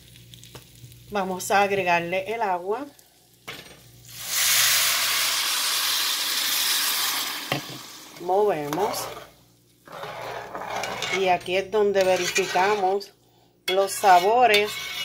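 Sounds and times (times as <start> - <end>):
water sizzling in hot pot: 0.0 - 10.0.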